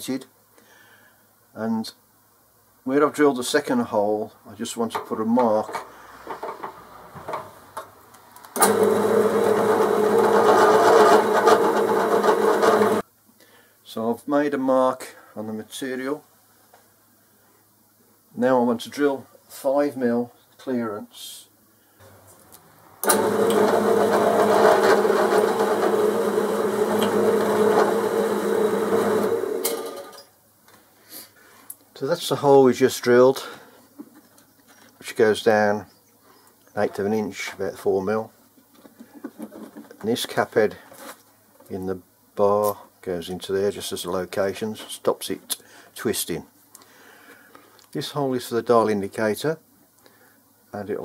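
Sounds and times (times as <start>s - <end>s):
drill press motor humming: 8.6s - 13.0s, 23.0s - 30.2s.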